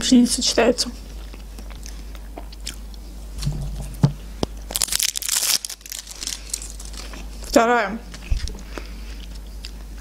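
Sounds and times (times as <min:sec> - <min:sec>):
quiet chewing: 0:01.0 - 0:03.1, 0:06.1 - 0:10.0
plastic wrapper crinkling and tearing: 0:04.7 - 0:07.2.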